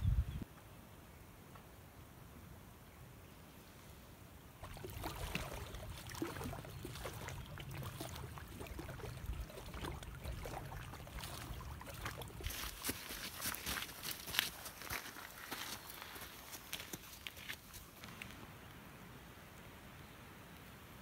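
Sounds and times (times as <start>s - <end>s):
wind rumble: 0.0s - 0.4s
waves lapping on shore: 4.6s - 15.3s.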